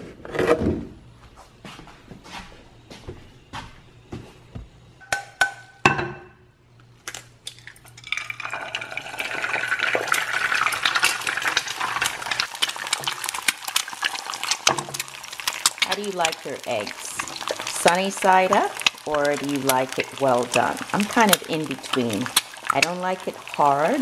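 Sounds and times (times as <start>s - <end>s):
kitchenware clinking: 5.0s - 6.4s
eggs sizzling in oil: 7.5s - 24.0s.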